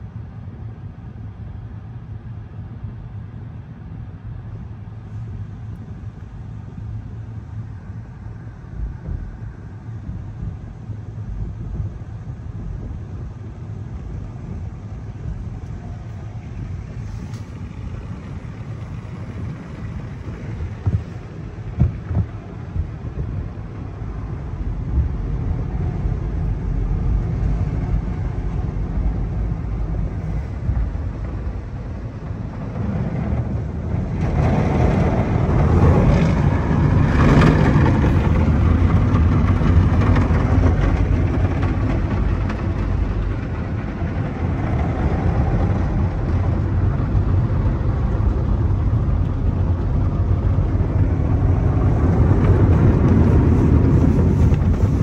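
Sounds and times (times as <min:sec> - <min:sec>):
car wash machinery rumble: 0:00.0 - 0:55.0
water spraying onto car: 0:13.5 - 0:55.0.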